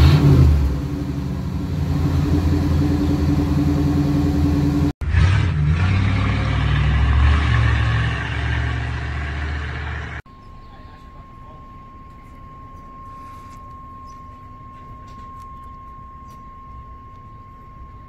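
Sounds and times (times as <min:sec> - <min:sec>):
car engine revving: 0:00.0 - 0:10.2
car engine rumbling: 0:00.0 - 0:18.0.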